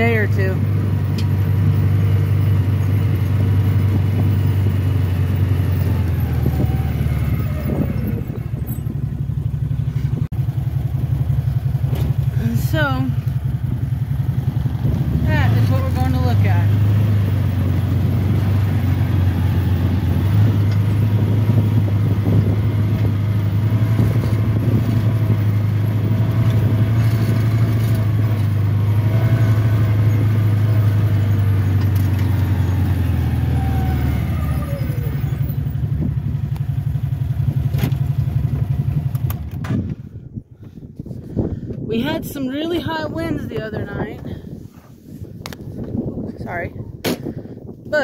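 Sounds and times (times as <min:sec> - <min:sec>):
scooter engine running: 0:00.0 - 0:33.6.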